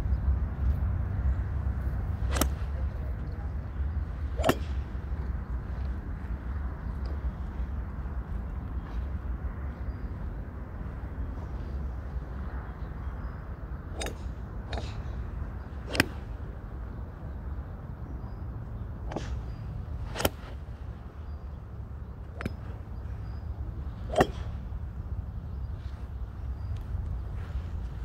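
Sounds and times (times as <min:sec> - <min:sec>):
steady low rumble: 0:00.0 - 0:28.0
golf clubs striking balls: 0:02.1 - 0:03.4, 0:04.3 - 0:05.3, 0:13.9 - 0:15.2, 0:15.8 - 0:16.5, 0:19.1 - 0:20.7, 0:22.2 - 0:25.0.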